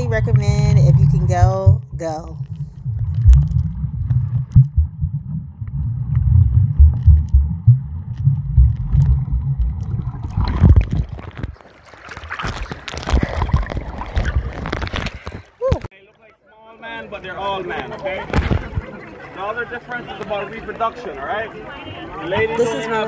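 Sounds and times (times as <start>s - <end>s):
muffled underwater rumble: 0.0s - 11.6s
water sloshing and splashing: 0.0s - 15.8s.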